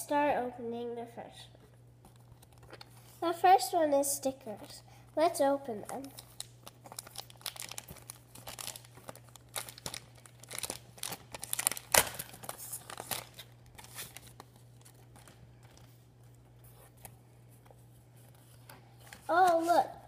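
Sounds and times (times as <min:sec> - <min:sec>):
plastic wrapping crinkling and tearing: 0:05.8 - 0:19.8.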